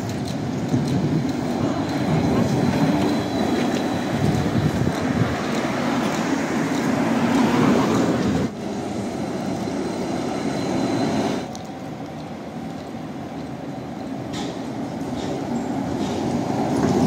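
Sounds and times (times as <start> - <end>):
vehicles passing close by: 1.4 - 10.2.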